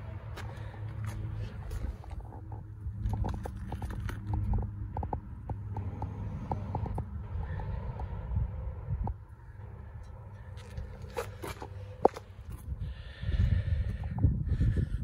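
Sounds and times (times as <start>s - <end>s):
steady low rumble: 0.0s - 15.0s
footsteps: 0.3s - 7.0s.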